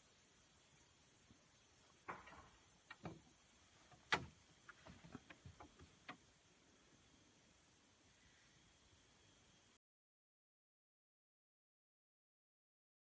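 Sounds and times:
faint high hiss: 0.0s - 9.8s.

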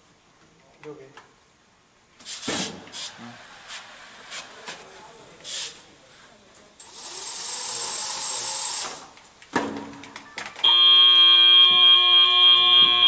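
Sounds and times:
hiss: 2.2s - 4.7s, 5.4s - 6.3s
loud steady buzzer: 10.7s - 13.0s.

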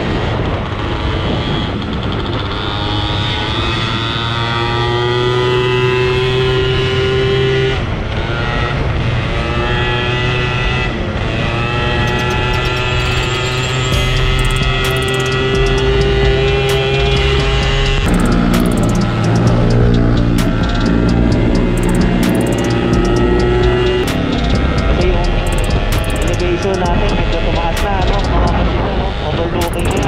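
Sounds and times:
wind rushing over microphone: 0.0s - 4.2s, 26.4s - 30.0s
scooter engine running: 0.0s - 7.5s, 8.3s - 30.0s.

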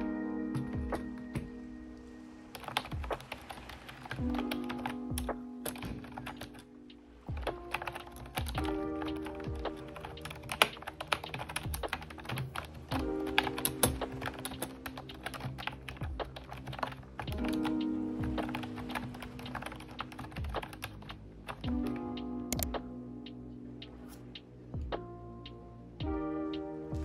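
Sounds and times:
background music: 0.0s - 27.0s
keyboard typing clicks: 4.0s - 6.7s, 7.4s - 17.8s, 18.4s - 22.8s.

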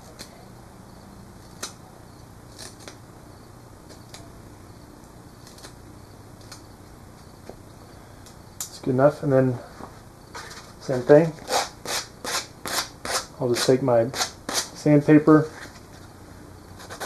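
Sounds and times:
low steady hum: 0.0s - 17.0s
knife scraping cane: 10.3s - 10.7s, 11.3s - 14.8s, 16.8s - 17.0s.

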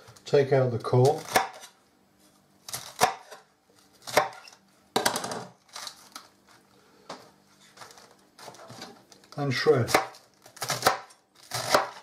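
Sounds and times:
knife cutting lettuce on board: 9.8s - 12.0s.

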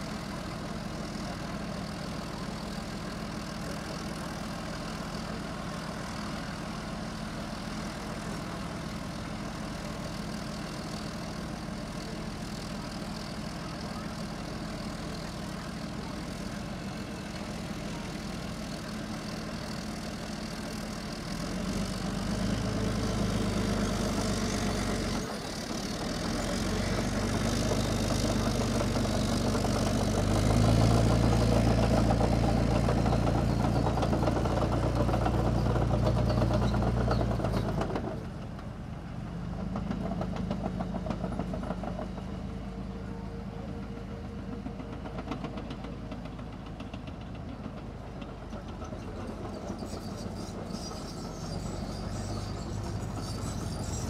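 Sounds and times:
diesel engine revving: 21.3s - 38.0s.

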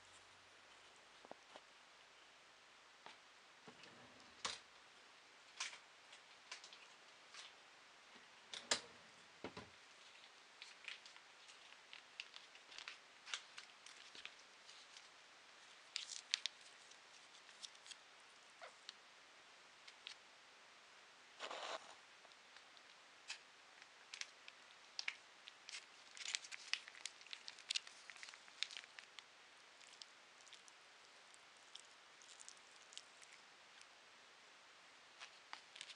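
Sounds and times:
cats eating: 9.8s - 19.0s, 21.4s - 34.0s.

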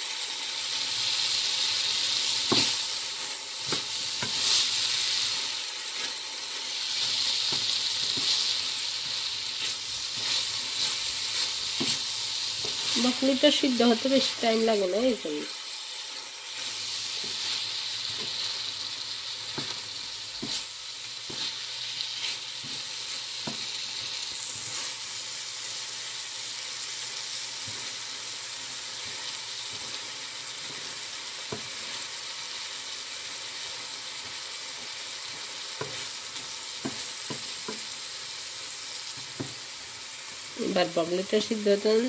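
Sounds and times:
vegetables sizzling in frying pan: 0.0s - 42.0s
spatula tapping and scraping pan: 2.4s - 2.8s, 3.6s - 4.6s, 7.0s - 13.0s, 17.1s - 18.5s, 19.5s - 21.6s, 22.2s - 24.9s, 36.8s - 37.9s, 39.2s - 39.6s.

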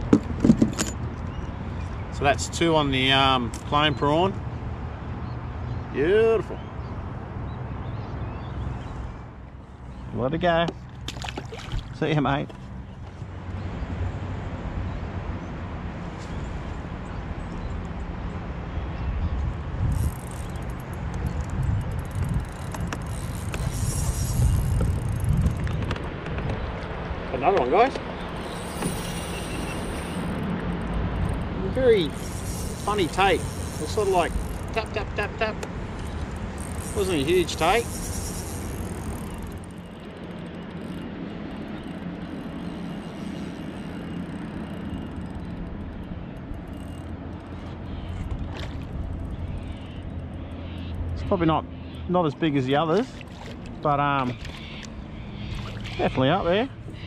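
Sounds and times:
wind buffeting microphone: 18.6s - 47.4s.

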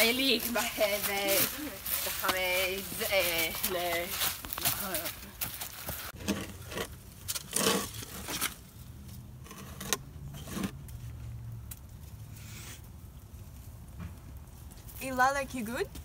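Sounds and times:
rustling through dry leaves: 0.0s - 6.2s.

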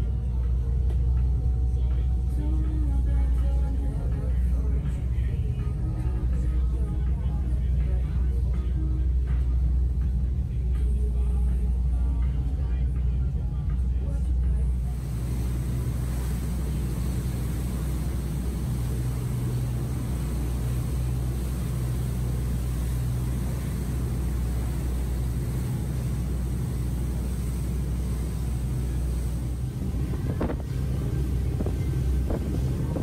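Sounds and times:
churning wake water: 0.0s - 33.0s
ferry engines droning: 0.0s - 33.0s
wind buffeting microphone: 15.0s - 33.0s.

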